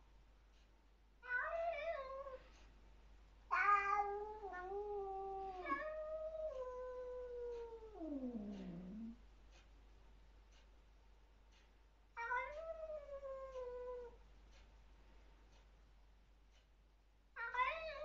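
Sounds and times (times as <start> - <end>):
cat yowling: 3.5 - 9.2.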